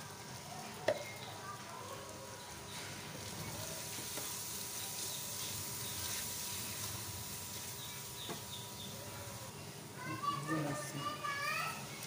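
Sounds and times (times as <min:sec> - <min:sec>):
meat sizzling in hot oil: 0:00.0 - 0:09.6.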